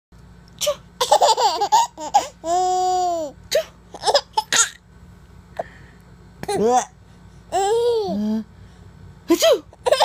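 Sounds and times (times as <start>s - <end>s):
baby giggling: 1.0s - 3.3s, 9.4s - 10.0s.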